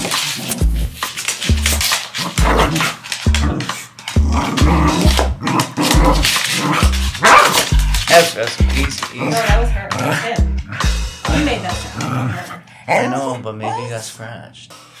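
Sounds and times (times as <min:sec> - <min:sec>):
music with kick-drum beat: 0:00.6 - 0:12.2
dog growling and barking: 0:02.1 - 0:08.0, 0:09.2 - 0:11.0, 0:11.6 - 0:13.2.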